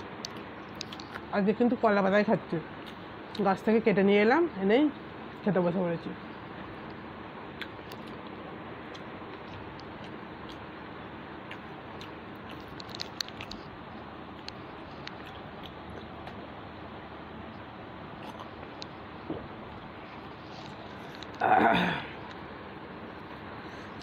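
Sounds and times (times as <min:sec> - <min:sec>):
person chewing food: 0:00.2 - 0:01.3, 0:02.8 - 0:03.0, 0:07.6 - 0:10.8, 0:11.4 - 0:16.6, 0:18.1 - 0:21.4.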